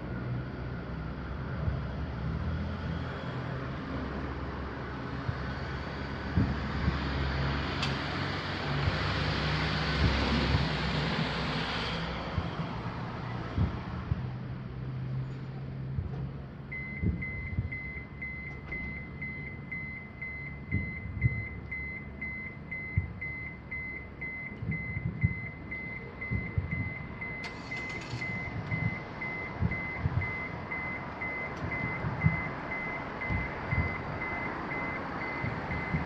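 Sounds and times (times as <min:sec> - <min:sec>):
high electronic beeps: 0:16.8 - 0:36.0.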